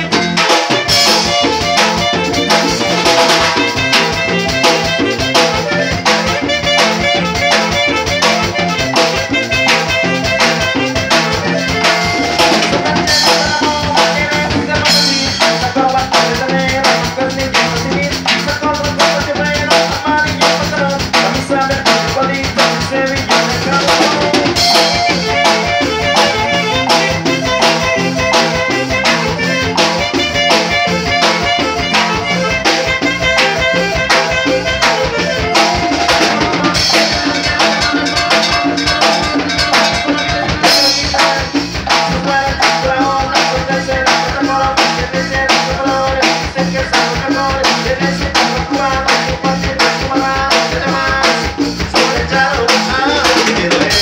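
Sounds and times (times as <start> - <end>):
electronic keyboard: 0.0 - 17.5, 21.5 - 42.4
drum kit beat: 0.0 - 54.0.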